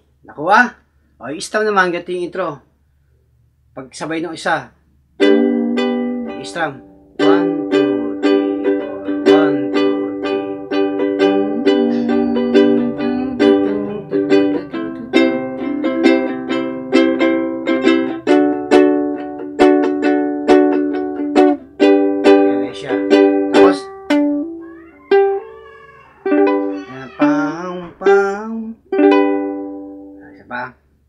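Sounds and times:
ukulele strumming chords: 0:05.2 - 0:25.4, 0:26.2 - 0:30.3.

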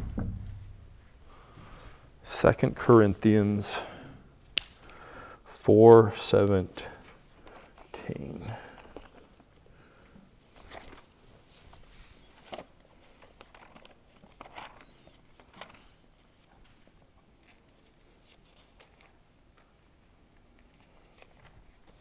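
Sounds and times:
pages rustling: 0:07.4 - 0:09.3, 0:10.5 - 0:22.0.

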